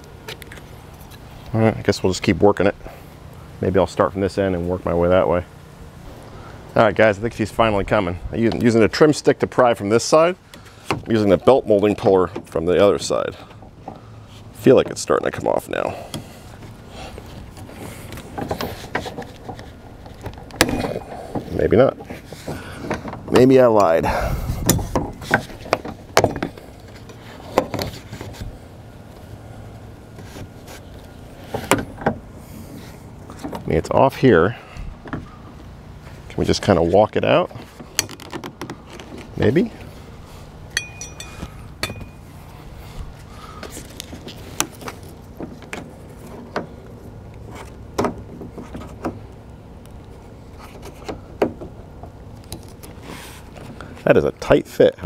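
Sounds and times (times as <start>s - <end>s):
low steady hum: 0.0s - 55.0s
scraping on car trim: 16.0s - 23.4s, 24.6s - 33.7s.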